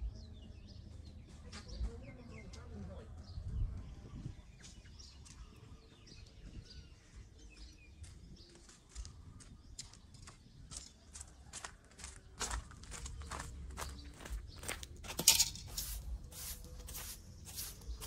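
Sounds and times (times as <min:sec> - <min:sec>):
faint birds chirping: 0:00.0 - 0:18.0
footsteps on dry leaves: 0:12.0 - 0:18.0.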